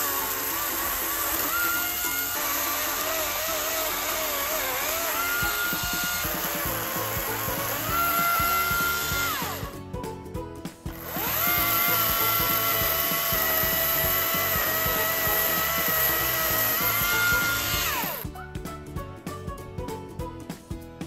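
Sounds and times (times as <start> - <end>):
electric chainsaw whine: 0.0 - 9.8, 10.9 - 18.3.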